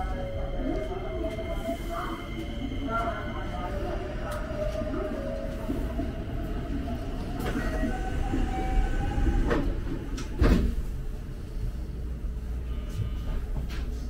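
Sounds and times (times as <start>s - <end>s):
faint train whine: 0.0s - 14.0s
train rumble: 0.0s - 14.0s.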